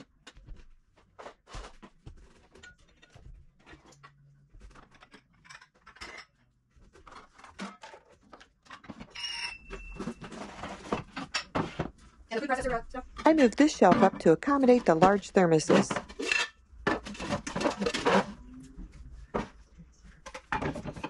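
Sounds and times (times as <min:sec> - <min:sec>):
glass clinking: 0:09.1 - 0:10.4.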